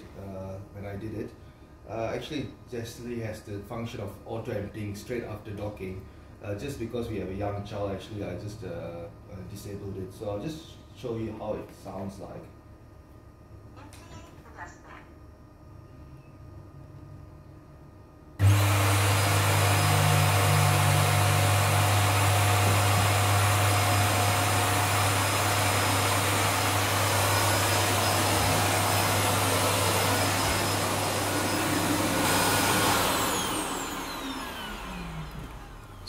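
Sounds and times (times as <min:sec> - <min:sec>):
vacuum suction motor hum and hiss: 0:18.4 - 0:36.0.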